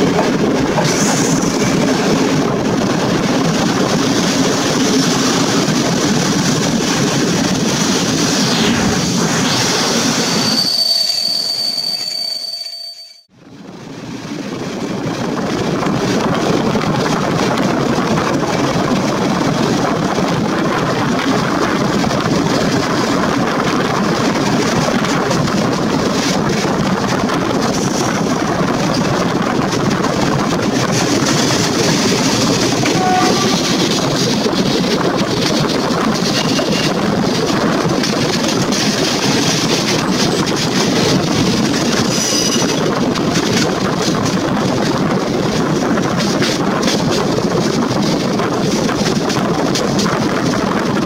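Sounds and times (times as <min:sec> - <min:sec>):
rushing wind: 0:00.0 - 0:51.0
train wheels rumbling on track: 0:00.0 - 0:51.0.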